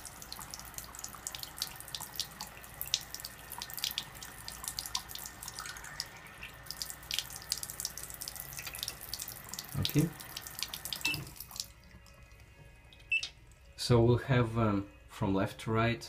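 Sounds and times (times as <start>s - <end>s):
water splashing into sink: 0.0s - 11.8s.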